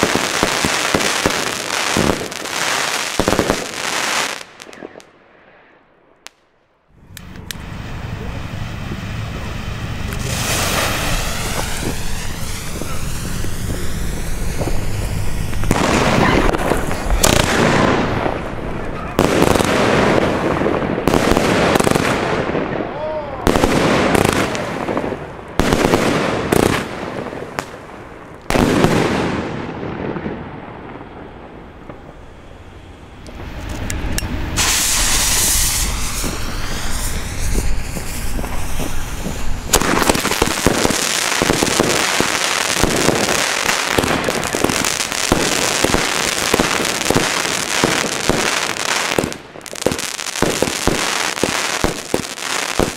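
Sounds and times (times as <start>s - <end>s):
firework battery rapid crackling: 0.0s - 5.1s, 7.0s - 22.7s, 23.5s - 52.9s
firework shells bursting: 0.0s - 5.1s, 10.1s - 22.2s, 33.0s - 52.9s
firework hissing launch whistling: 7.2s - 18.5s, 31.9s - 52.9s.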